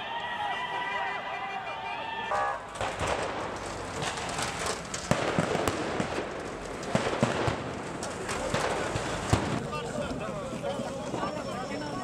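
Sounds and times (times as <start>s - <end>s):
sharp bangs and pops: 2.4s - 9.8s.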